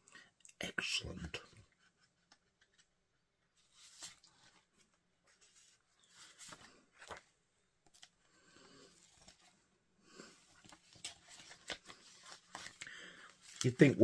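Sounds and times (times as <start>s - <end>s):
paper sleeve rustling: 3.6s - 7.2s, 10.5s - 14.0s.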